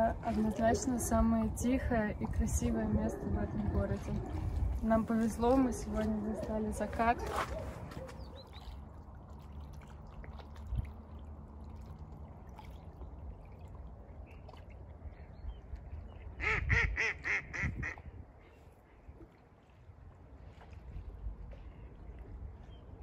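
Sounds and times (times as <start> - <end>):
wind rumble: 0.0 - 9.3, 14.9 - 23.0
water lapping: 0.0 - 23.0
duck quacking: 16.4 - 18.0.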